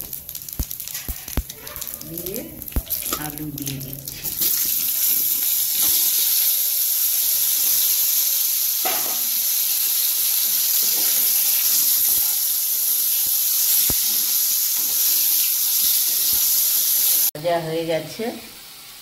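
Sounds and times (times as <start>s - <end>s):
potato wedges sizzling in oil: 0.0s - 19.0s
metal spatula in pan: 2.6s - 6.5s, 10.7s - 12.4s
knocks in pan: 8.8s - 9.3s.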